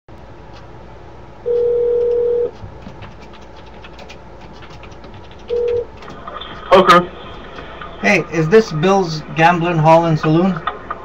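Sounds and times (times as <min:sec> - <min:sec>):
telephone ringback tone: 0:01.5 - 0:02.5
line clicks: 0:04.9 - 0:06.4.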